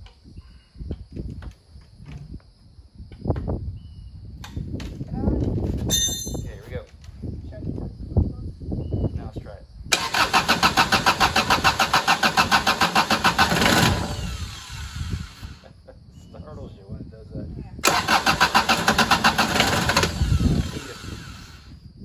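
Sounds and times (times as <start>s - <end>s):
diesel engine cranking: 9.9s - 15.6s, 17.8s - 21.7s.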